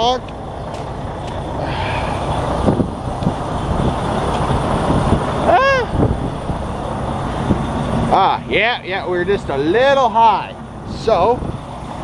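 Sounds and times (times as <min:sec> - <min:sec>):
diesel truck engine idling: 0:00.0 - 0:12.0
voice-like rising and falling tone: 0:05.3 - 0:06.2.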